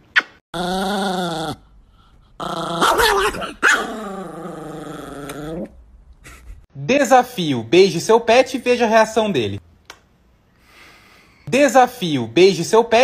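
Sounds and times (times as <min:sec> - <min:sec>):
dog growling: 0:00.6 - 0:05.8.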